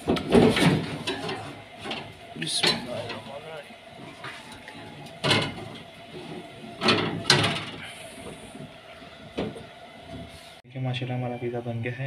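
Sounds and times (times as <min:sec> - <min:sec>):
metal pan scraping on oven rack: 0:00.0 - 0:08.4.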